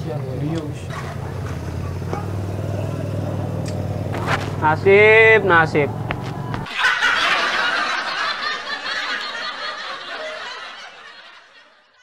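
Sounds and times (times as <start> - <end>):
laugh track: 6.4 - 12.0.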